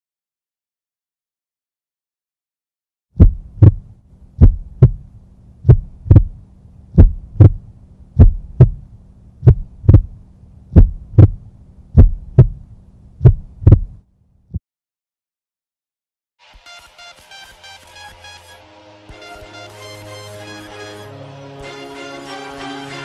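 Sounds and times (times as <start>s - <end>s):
heartbeat thumps: 3.2s - 6.4s, 7.0s - 7.6s, 8.2s - 12.6s, 13.2s - 14.0s
steady low hum: 3.2s - 14.4s.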